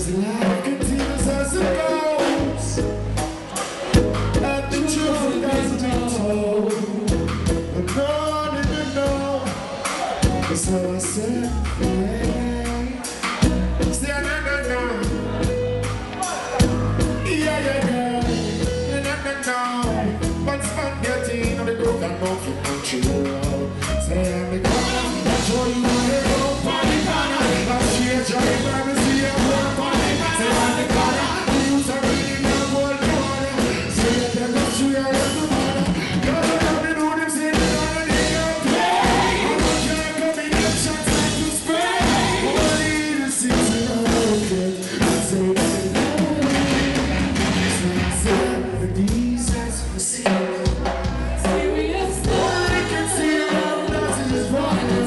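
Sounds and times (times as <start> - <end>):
man singing into a microphone: 0.0 - 3.0, 4.3 - 15.6, 16.2 - 55.0
reggae band playing: 0.0 - 55.0.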